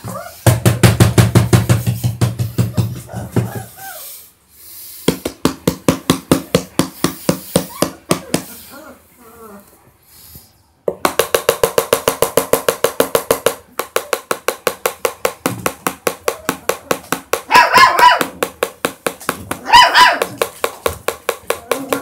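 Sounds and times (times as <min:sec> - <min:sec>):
puppies yelping: 0:02.8 - 0:04.3, 0:07.6 - 0:09.7, 0:17.5 - 0:18.3, 0:19.6 - 0:20.3.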